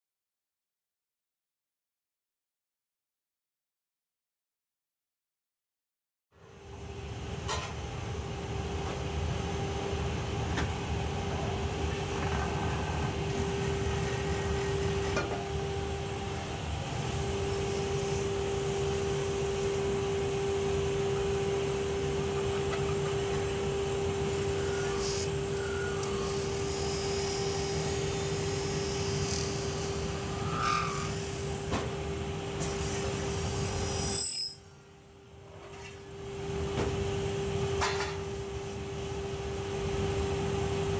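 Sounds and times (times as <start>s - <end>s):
lathe humming: 10.8s - 31.6s
cutting tool scraping metal: 25.9s - 31.3s.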